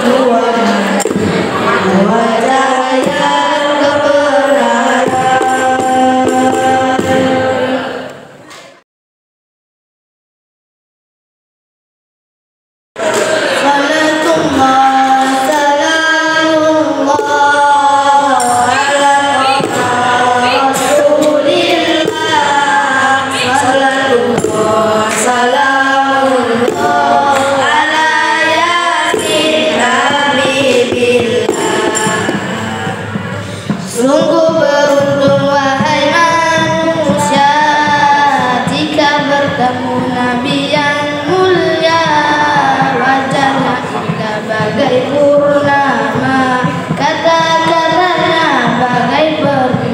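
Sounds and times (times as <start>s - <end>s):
boys singing into microphones: 0.0s - 8.7s, 13.0s - 49.9s.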